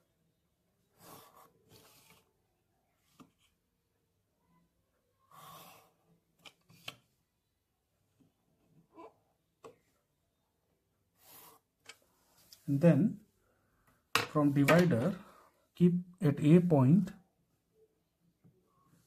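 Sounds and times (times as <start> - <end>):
pencil scratching on paper: 0.8 - 2.3, 5.3 - 6.1, 11.2 - 11.7.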